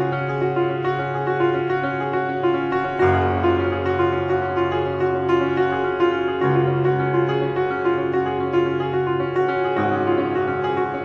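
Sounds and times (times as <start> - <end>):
instrumental music: 0.0 - 11.0.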